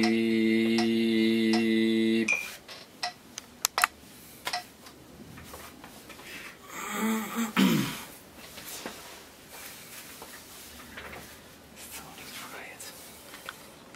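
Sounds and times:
man clearing his throat: 0:06.8 - 0:08.1.

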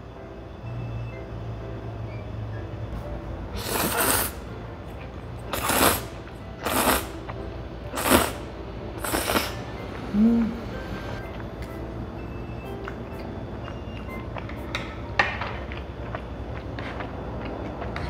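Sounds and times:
noodles being slurped: 0:03.6 - 0:04.4, 0:05.5 - 0:07.2, 0:07.9 - 0:09.6.

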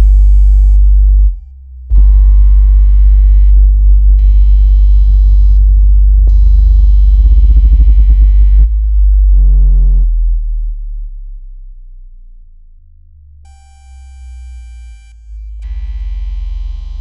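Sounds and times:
dense layered synth pitches: 0:00.0 - 0:12.2
deep synthesized bass tone: 0:00.0 - 0:17.0.

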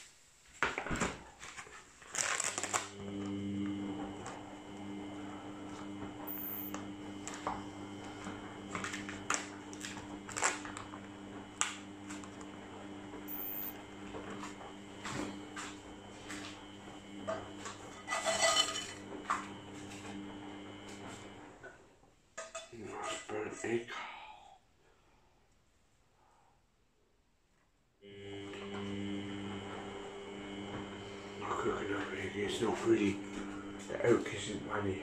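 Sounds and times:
steady low hum: 0:28.1 - 0:35.0.

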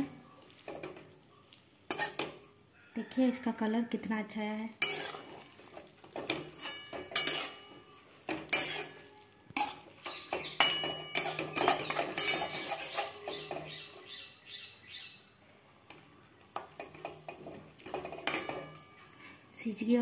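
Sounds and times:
metal spatula scraping a metal pan: 0:00.3 - 0:02.6, 0:04.8 - 0:14.1, 0:16.6 - 0:19.8.

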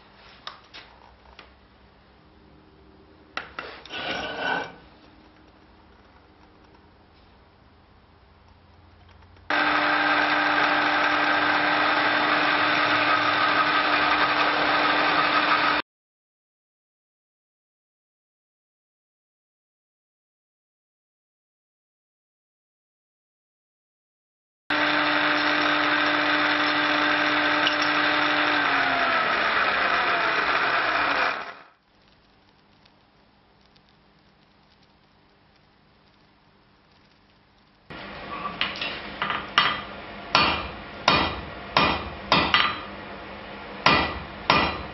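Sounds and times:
electric drill boring through steel: 0:09.5 - 0:15.8, 0:24.7 - 0:31.8.

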